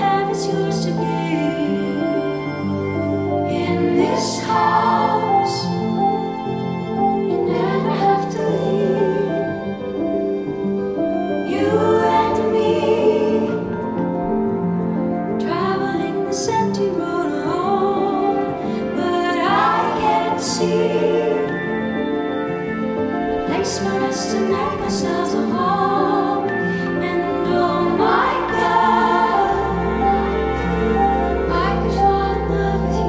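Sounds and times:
slow tender music with singing: 0.0s - 33.0s.

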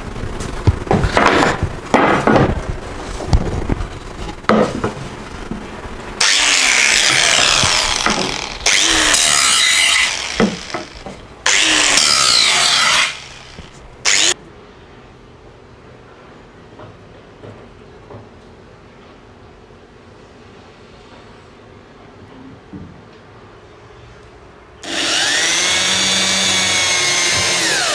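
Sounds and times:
angle grinder on wood: 0.0s - 14.4s, 24.8s - 27.9s.

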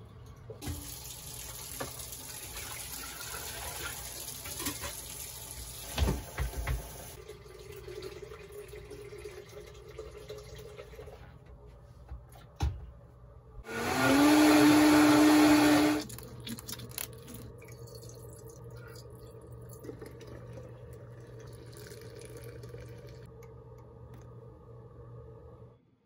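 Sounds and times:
blender motor running: 13.6s - 16.1s
faint steady hum: 16.0s - 26.0s.

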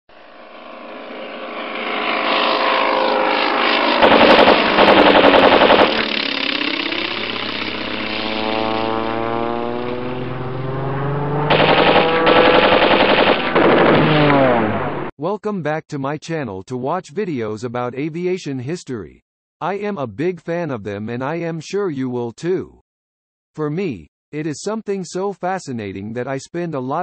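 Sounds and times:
propeller aircraft engine drone: 0.1s - 15.1s
machine-gun fire: 4.0s - 8.2s, 11.5s - 14.8s.

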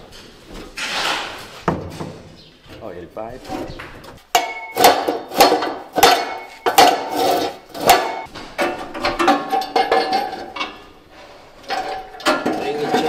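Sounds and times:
metal pipe clanking on metal: 4.3s - 11.0s, 11.6s - 13.0s.

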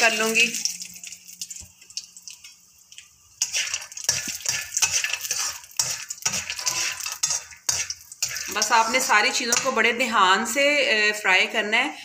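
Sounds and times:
spatula scraping metal wok: 3.4s - 10.2s.

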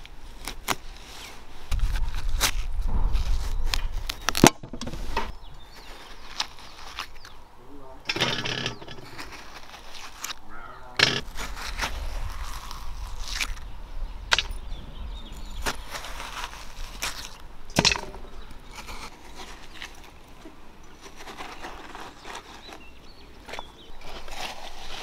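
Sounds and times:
sharp knocks and cracks: 2.4s - 5.3s, 11.0s - 11.9s, 14.3s - 14.7s, 15.6s - 19.1s.

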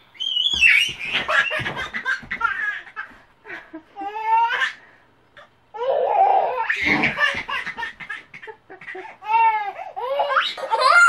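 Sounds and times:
baby laughing: 0.5s - 3.2s, 5.8s - 11.0s.

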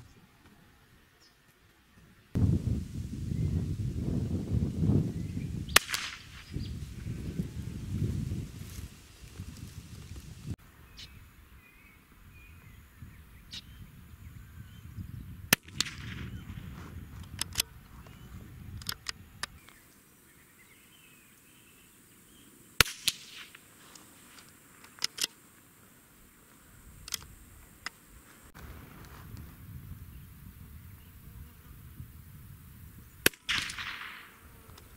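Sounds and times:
rifle shots: 5.7s - 6.5s, 15.5s - 16.4s, 22.8s - 23.6s, 33.2s - 34.4s.

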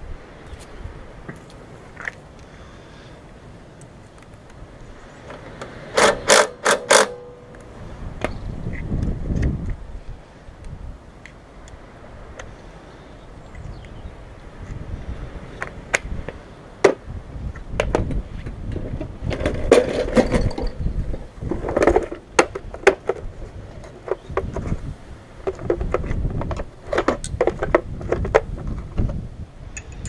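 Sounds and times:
wind rumble on microphone: 0.0s - 2.2s, 7.6s - 30.0s
metal sockets clinking: 29.8s - 30.0s.

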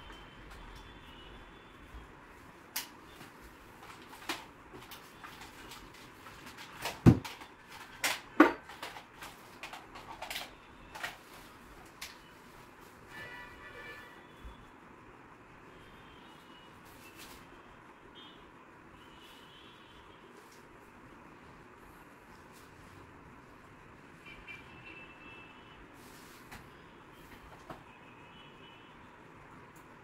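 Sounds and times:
clicks and knocks of handling: 2.8s - 12.2s.

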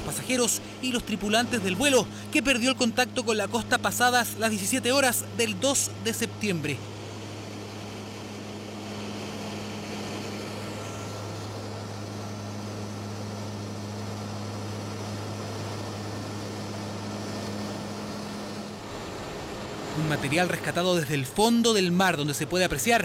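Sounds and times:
propeller plane cabin drone: 0.0s - 23.0s.

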